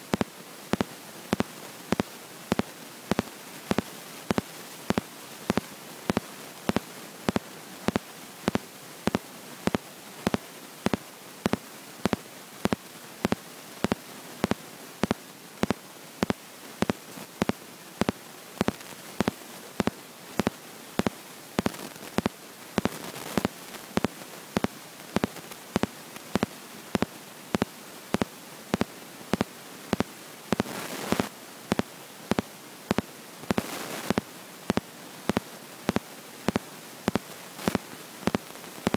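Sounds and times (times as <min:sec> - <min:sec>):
sharp repeating clicks: 0:00.2 - 0:38.9.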